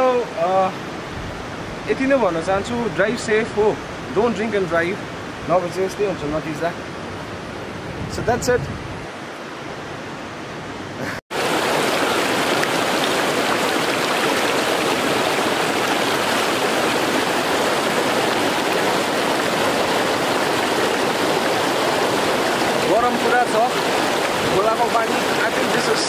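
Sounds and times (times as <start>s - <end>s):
river rushing over rocks: 11.3s - 26.0s.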